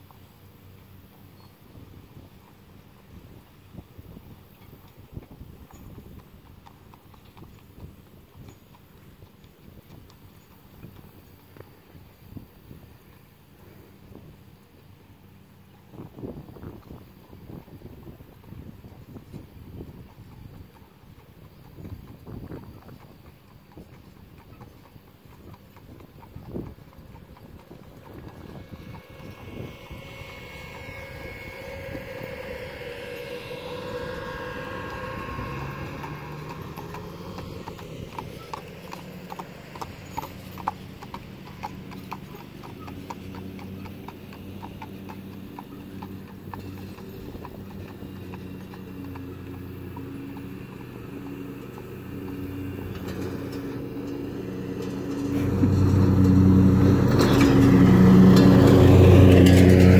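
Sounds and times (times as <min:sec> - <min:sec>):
horse hooves on asphalt: 0:00.0 - 0:13.9, 0:15.7 - 0:30.8, 0:34.7 - 0:59.9
riding mower engine humming: 0:24.8 - 0:59.9.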